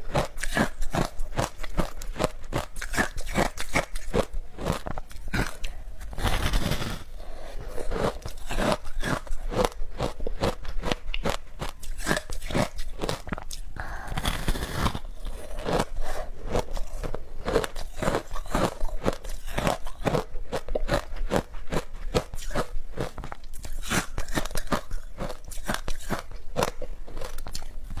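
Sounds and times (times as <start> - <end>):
crunching shaved ice: 7.8 - 13.4, 14.1 - 28.0.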